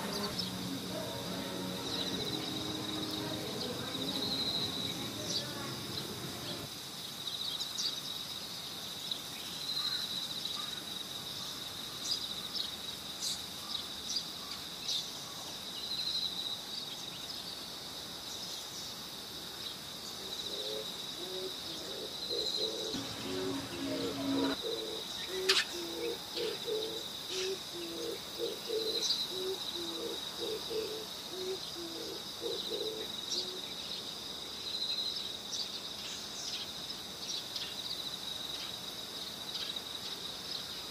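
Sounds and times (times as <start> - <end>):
high-pitched whine: 0.0 - 6.7, 22.9 - 25.5.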